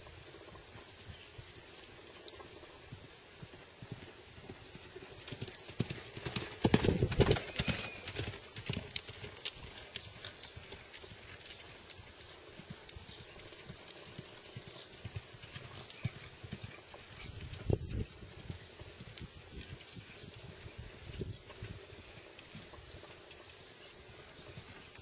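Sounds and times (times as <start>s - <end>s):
horse hooves cantering on sand: 0.0s - 25.0s.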